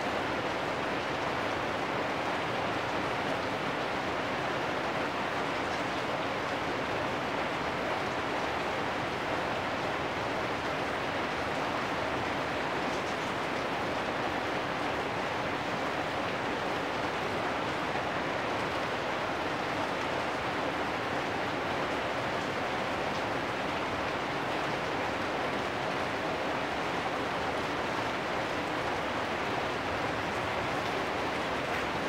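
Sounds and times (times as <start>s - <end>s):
rain on metal roofs: 0.0s - 32.0s.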